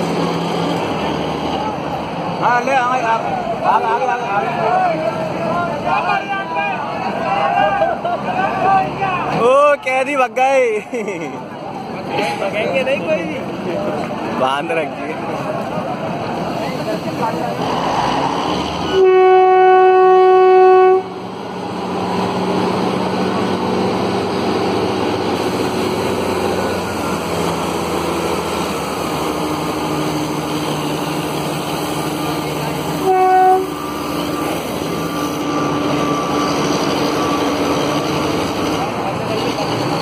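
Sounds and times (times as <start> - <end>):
diesel locomotive engine passing: 0.0 - 40.0
locomotive horn blast: 18.8 - 21.3, 32.8 - 34.6.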